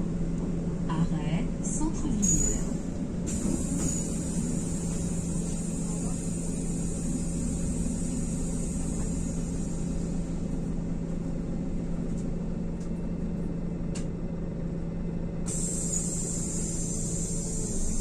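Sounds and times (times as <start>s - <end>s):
bus diesel engine rumble: 0.0s - 18.0s
constant low hum: 0.0s - 18.0s.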